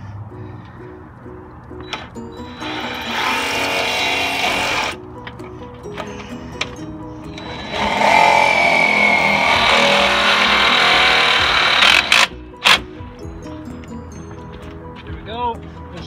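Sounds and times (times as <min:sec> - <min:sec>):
cordless drill whining: 0:01.8 - 0:05.0, 0:07.3 - 0:12.8.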